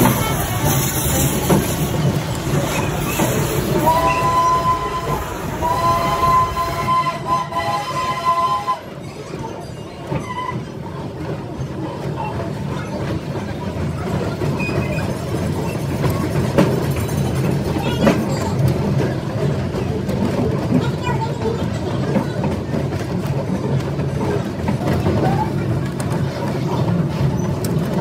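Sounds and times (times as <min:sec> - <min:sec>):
train rumbling: 0:00.0 - 0:28.0
steam locomotive whistle blasts: 0:03.7 - 0:09.0.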